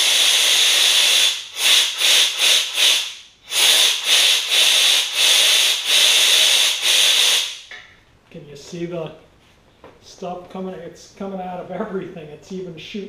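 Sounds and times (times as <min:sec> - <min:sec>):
spray gun hissing air blasts: 0:00.0 - 0:07.7.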